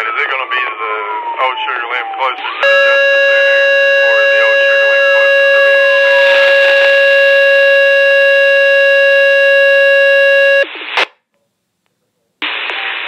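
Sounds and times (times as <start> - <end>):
loud steady electronic alert tone: 2.6 - 10.6.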